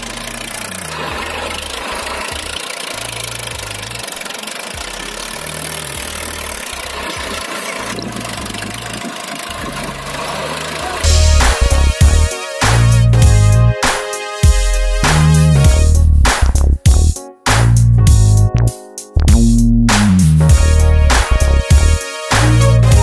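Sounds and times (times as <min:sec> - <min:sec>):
tractor engine idling: 0:00.0 - 0:13.7.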